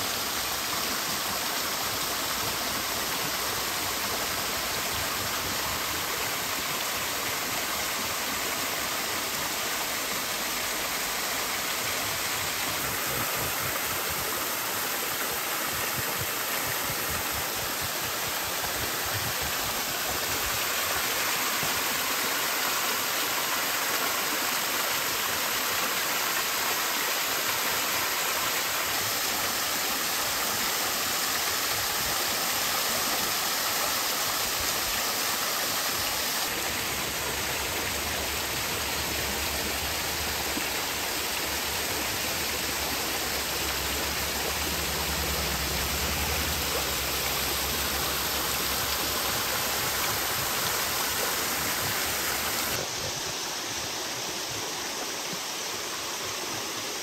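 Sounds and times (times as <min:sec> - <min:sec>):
stream running over pebbles: 0:00.0 - 0:57.0
waterfall splashing onto rocks: 0:12.1 - 0:55.6.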